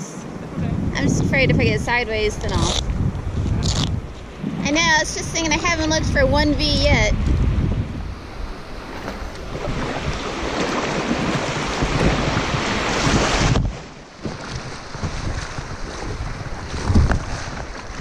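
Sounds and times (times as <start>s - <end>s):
wind buffeting microphone: 0.0s - 18.0s
river water rushing: 8.1s - 18.0s.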